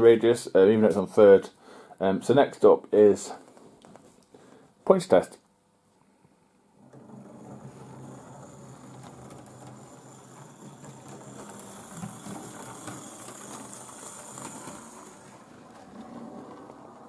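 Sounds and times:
model train motor whirring: 0:06.8 - 0:17.0
wheels clicking on track: 0:06.8 - 0:17.0.

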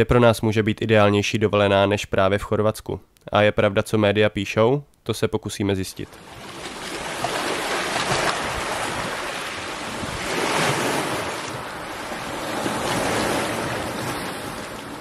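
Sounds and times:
sea waves washing against rocks: 0:06.1 - 0:15.0.

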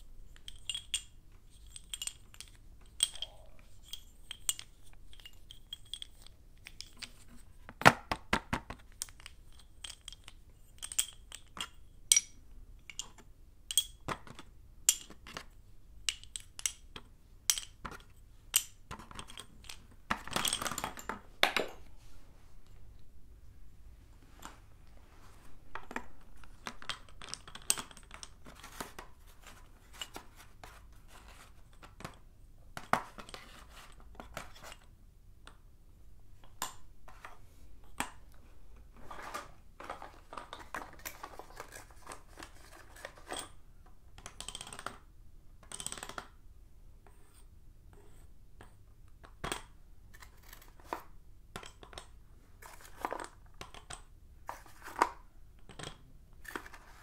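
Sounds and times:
chalk sticks clicking: 0:00.3 - 0:07.4.

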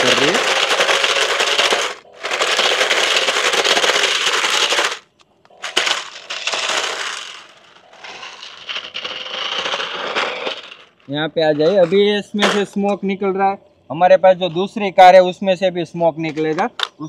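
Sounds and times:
wheels scrubbing and rattling: 0:00.0 - 0:12.8.

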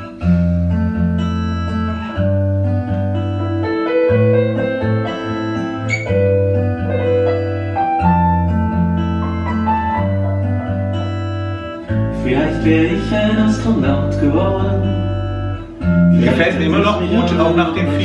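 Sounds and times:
keyboard chords: 0:00.0 - 0:18.0
piano melody: 0:00.0 - 0:18.0
steady bass: 0:00.0 - 0:18.0
person singing: 0:12.1 - 0:18.0.

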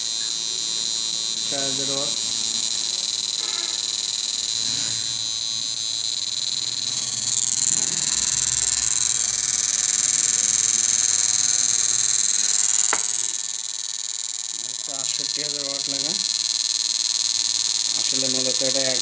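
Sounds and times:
high-pitched electronic whine: 0:00.0 - 0:19.0.

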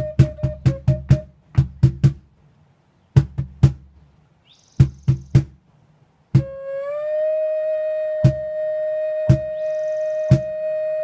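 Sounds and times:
drum beats: 0:00.0 - 0:02.4, 0:03.1 - 0:04.1, 0:04.8 - 0:05.6, 0:06.3 - 0:06.6, 0:08.2 - 0:08.6, 0:09.2 - 0:10.6
wooden flute held note: 0:06.4 - 0:11.0.

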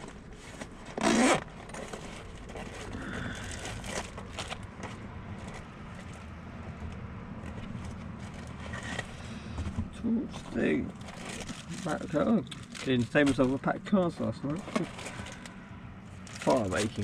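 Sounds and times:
car engine humming: 0:00.0 - 0:17.0
rustling and rummaging: 0:00.0 - 0:17.0
zip pulled open: 0:00.9 - 0:01.5.

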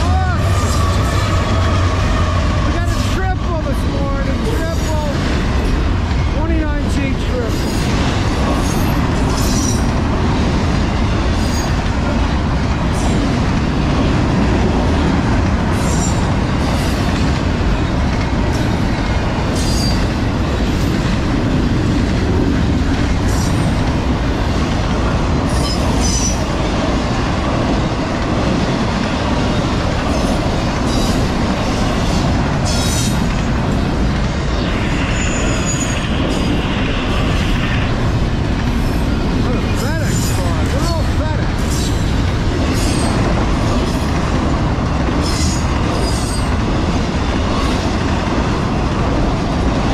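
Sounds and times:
freight train wheels rumbling: 0:00.0 - 0:49.9
high wheel squeals: 0:34.9 - 0:36.5.

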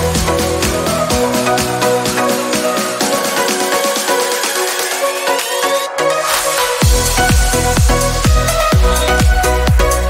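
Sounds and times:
electronic music: 0:00.0 - 0:10.0
kick drum beat: 0:06.8 - 0:10.0.

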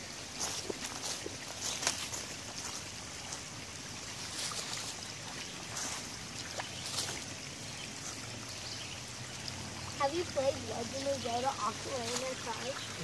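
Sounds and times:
creek water trickling: 0:00.0 - 0:13.0
rustles and splashes of wet leaves: 0:00.0 - 0:13.0.

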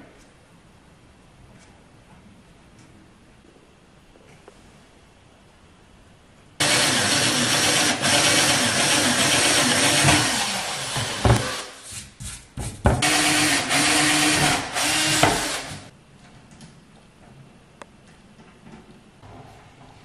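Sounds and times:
cordless drill whining: 0:13.0 - 0:15.9.

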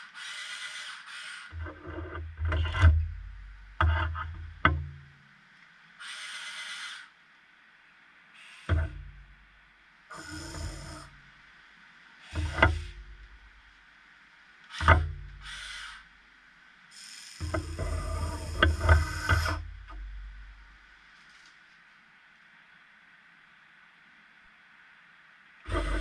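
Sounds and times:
electric motors whirring: 0:10.1 - 0:11.1, 0:17.0 - 0:19.7, 0:25.7 - 0:26.0
sharp metallic knocks: 0:14.8 - 0:15.5.

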